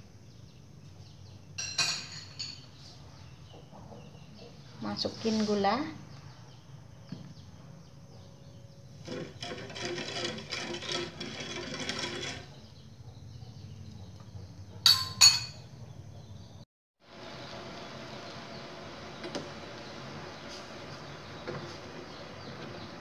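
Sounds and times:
spoon scraping metal pan: 0:09.0 - 0:12.6
spoon clinking on pan: 0:14.8 - 0:15.7.

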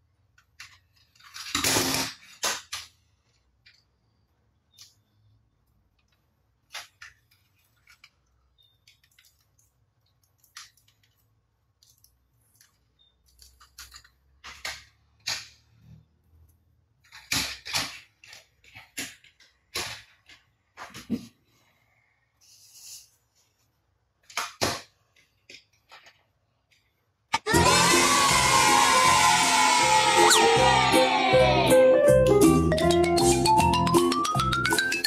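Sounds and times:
plastic toys clicking on table: 0:12.6 - 0:15.8, 0:17.0 - 0:20.5.

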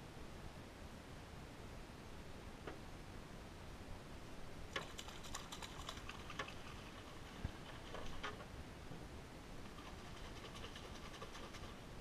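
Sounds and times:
hands scratching and clicking: 0:09.7 - 0:11.8.

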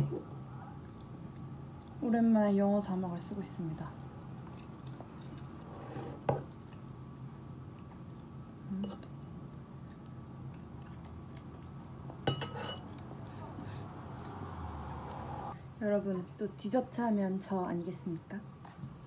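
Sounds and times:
quiet chewing: 0:00.6 - 0:02.0, 0:09.0 - 0:12.0.

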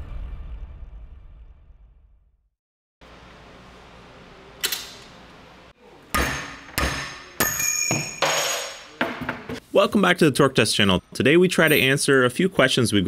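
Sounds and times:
metal strikes on wrench: 0:06.1 - 0:09.4.

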